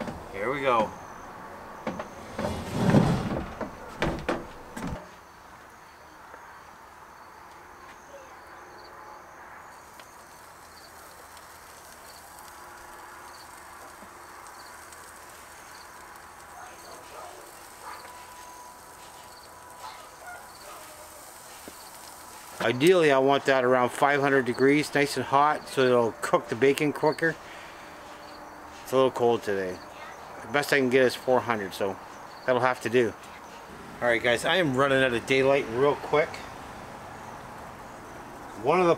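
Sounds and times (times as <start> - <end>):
high insect chirps: 5.1 - 23.2, 36.5 - 38.6
steady hiss: 9.7 - 29.8, 30.5 - 38.9.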